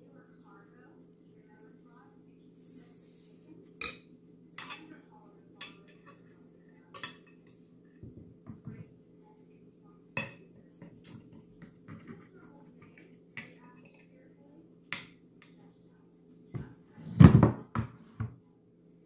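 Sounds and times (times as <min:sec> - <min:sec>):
steady low hum: 0:00.0 - 0:17.7
cutlery clinking on a plate: 0:03.8 - 0:04.9, 0:06.9 - 0:07.6.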